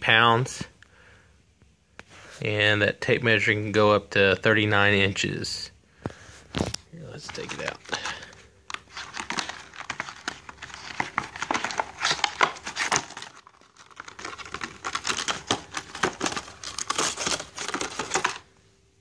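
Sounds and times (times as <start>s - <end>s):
plastic packaging crinkling: 6.6s - 18.6s.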